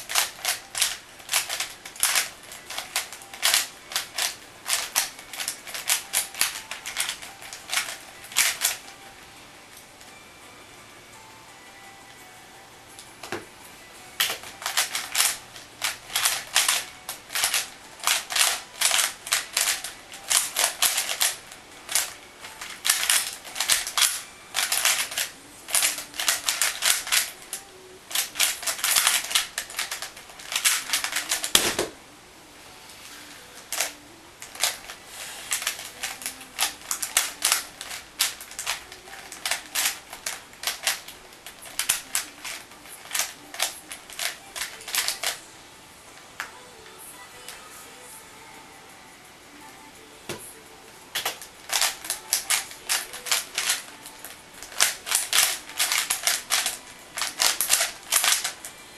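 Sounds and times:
puzzle cube clacking: 0.0s - 9.0s, 14.2s - 32.0s, 33.6s - 45.4s, 51.1s - 58.8s.

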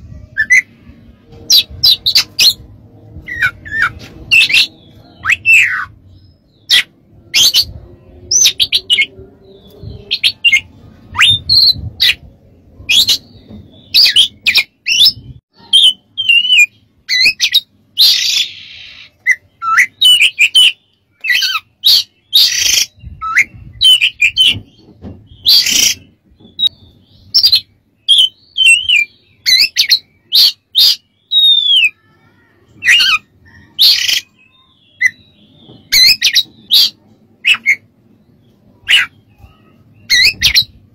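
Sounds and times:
bird singing whistled notes: 3.2s - 12.2s, 12.8s - 24.6s, 25.3s - 32.0s.

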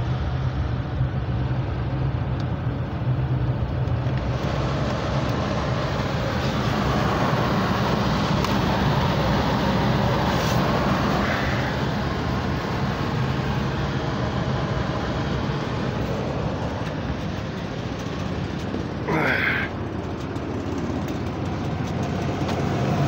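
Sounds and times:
heater blower fan rushing air: 0.0s - 23.0s.

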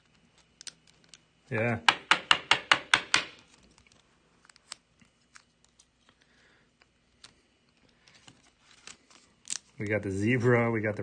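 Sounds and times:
soft plastic rustle: 3.4s - 11.0s.

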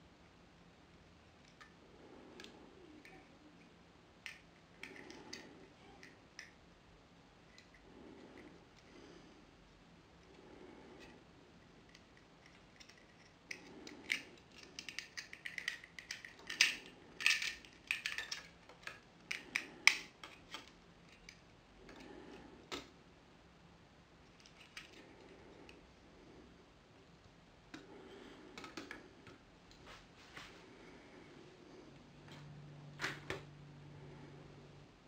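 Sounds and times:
plastic bricks clicking together: 12.0s - 22.0s.

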